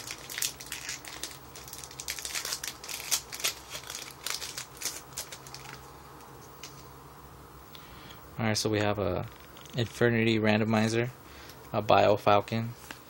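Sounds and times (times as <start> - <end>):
foil wrapper tearing and crinkling: 0.0 - 5.9.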